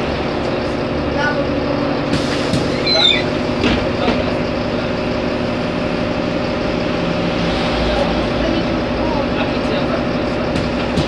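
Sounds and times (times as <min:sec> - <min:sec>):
bus engine running: 0:00.0 - 0:11.0
short high squeaks: 0:02.7 - 0:03.4.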